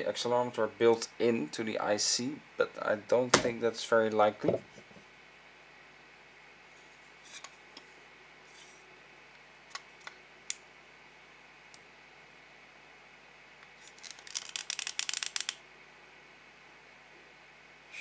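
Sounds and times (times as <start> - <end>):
plastic handling taps: 4.4 - 4.9.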